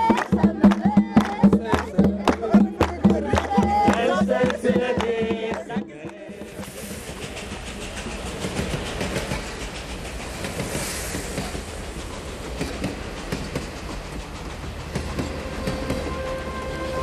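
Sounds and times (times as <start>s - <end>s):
train rumbling over bridge: 0.0s - 17.0s
wheels clicking over rail joints: 7.0s - 16.2s.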